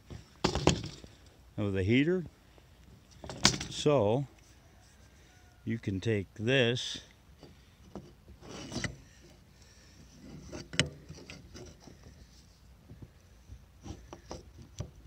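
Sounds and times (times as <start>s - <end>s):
rubbing and scraping on plywood: 7.4s - 9.4s, 10.0s - 12.6s, 13.8s - 15.0s.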